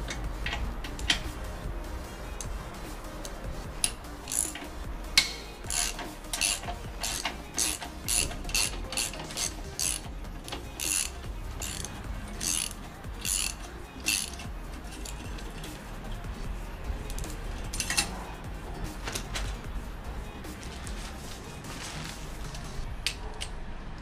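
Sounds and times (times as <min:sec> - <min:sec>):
ratchet wrench clicking: 0:00.0 - 0:16.3, 0:17.0 - 0:19.7.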